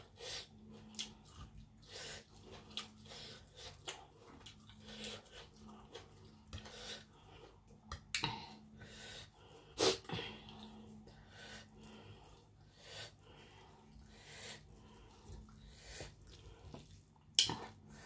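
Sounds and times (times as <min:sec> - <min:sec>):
faint steady hum: 0:00.0 - 0:18.0
chewing and mouth noises: 0:00.6 - 0:08.3, 0:13.6 - 0:18.0.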